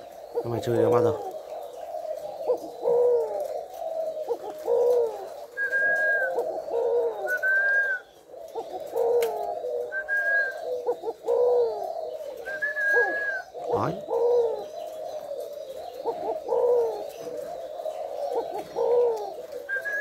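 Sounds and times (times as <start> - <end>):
dove cooing: 0.0 - 20.0.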